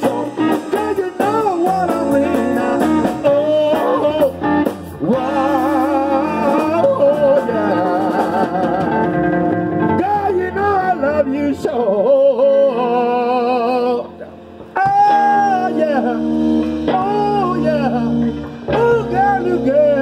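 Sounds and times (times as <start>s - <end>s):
bass guitar: 0.0s - 20.0s
drums: 0.0s - 20.0s
electric guitar: 0.0s - 20.0s
man singing with vibrato: 0.0s - 20.0s.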